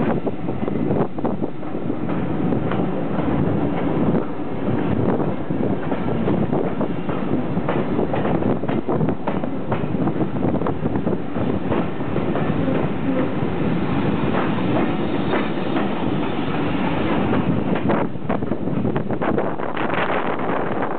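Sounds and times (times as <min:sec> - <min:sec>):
train rumble: 0:00.0 - 0:20.9.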